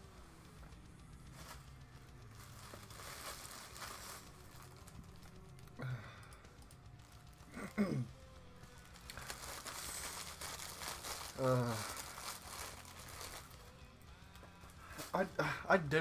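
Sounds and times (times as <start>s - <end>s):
crinkling and rustling: 0.0s - 16.0s.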